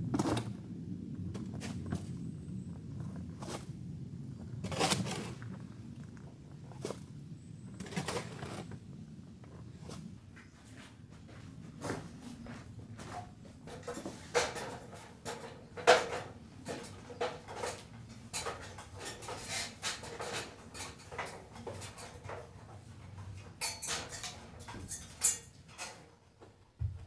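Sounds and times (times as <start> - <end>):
footsteps: 9.5 - 14.3
feet clanking on metal ladder rungs: 11.8 - 27.0.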